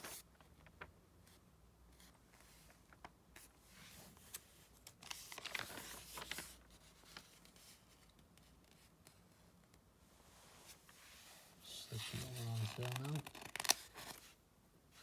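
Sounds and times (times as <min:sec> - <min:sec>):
magazine page rustling: 0:00.0 - 0:01.4, 0:02.0 - 0:08.9, 0:11.9 - 0:14.4.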